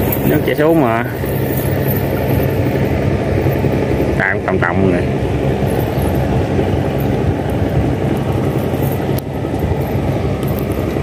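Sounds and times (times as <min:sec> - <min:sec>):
small boat engine drone: 0:00.0 - 0:11.0.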